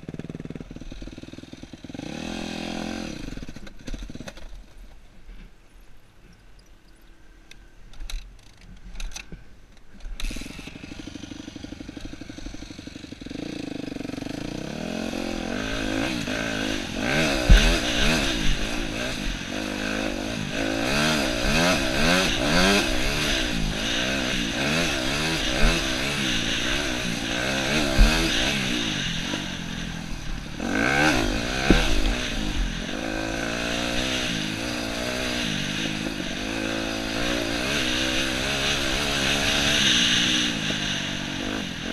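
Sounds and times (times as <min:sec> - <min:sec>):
dirt bike engine revving: 0:00.0 - 0:04.6, 0:10.2 - 0:41.9
sharp thumps: 0:15.2 - 0:36.1.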